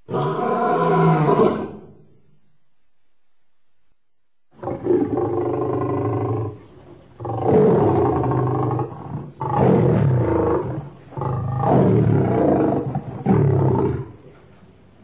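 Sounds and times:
lion roaring: 0.1s - 2.0s, 4.6s - 14.2s.

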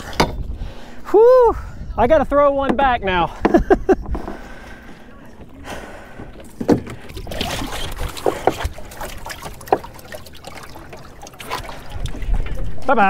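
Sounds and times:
water trickling and splashing: 0.0s - 1.1s, 4.2s - 13.0s.

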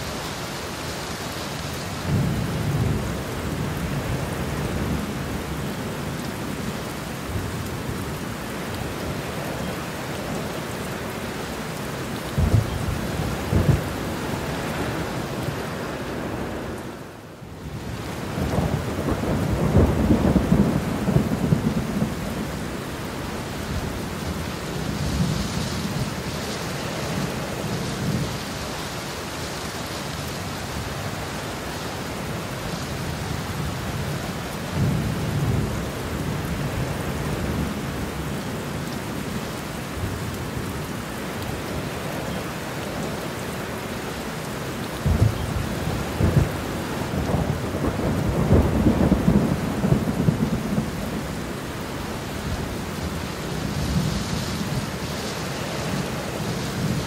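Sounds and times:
heavy rain: 0.0s - 57.0s
thunder rumbling: 12.3s - 15.6s, 17.8s - 22.8s, 45.0s - 51.6s.

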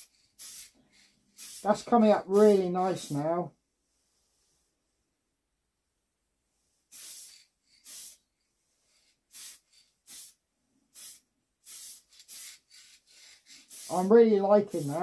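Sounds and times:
aerosol spray can hissing: 0.0s - 3.2s, 6.9s - 8.2s, 8.9s - 15.0s.

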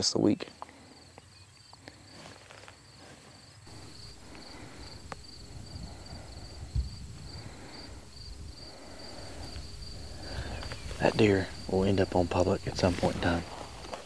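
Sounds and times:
crickets chirping: 0.0s - 14.0s
wind rumble on microphone: 3.8s - 13.8s.

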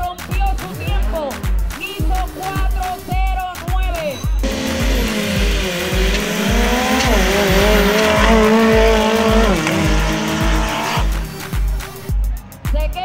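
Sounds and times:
background music with steady beat: 0.0s - 13.0s
engines at full throttle: 4.4s - 12.1s.

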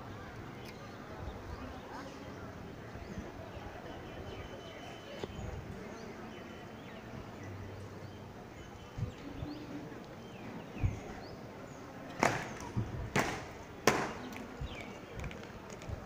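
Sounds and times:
loud sharp cracks: 12.2s - 14.4s.

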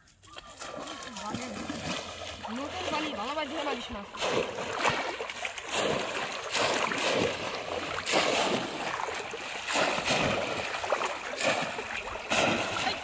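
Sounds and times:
muddy water splashing: 0.0s - 13.0s.

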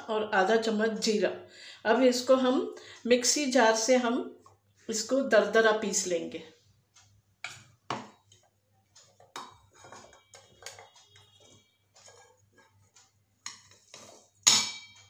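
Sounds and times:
steel bowls clinking on a jar: 13.5s - 15.0s.

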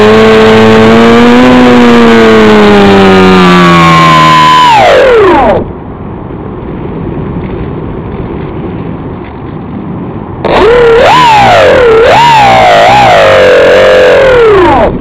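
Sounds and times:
electric motor and propeller whine: 0.0s - 5.8s, 10.4s - 15.0s.

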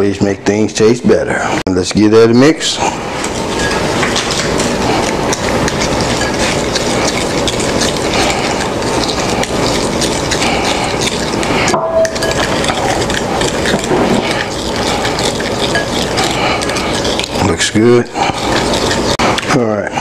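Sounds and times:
liquid sloshing: 2.8s - 19.5s
spoon stirring in glass bowl: 2.8s - 19.5s.

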